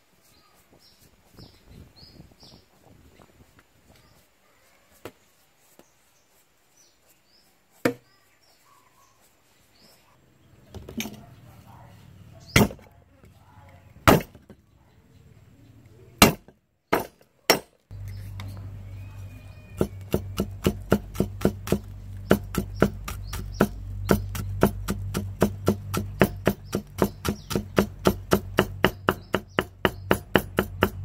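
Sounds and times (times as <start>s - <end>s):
cleaver chopping on wooden board: 12.6s - 12.9s, 14.1s - 14.4s, 16.2s - 17.7s, 19.8s - 31.0s.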